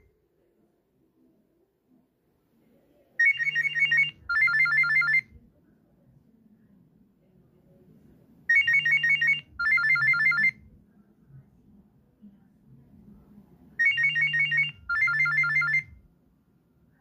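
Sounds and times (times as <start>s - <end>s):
mobile phone ringtone beeps: 3.2s - 5.3s, 8.5s - 10.6s, 13.8s - 15.9s.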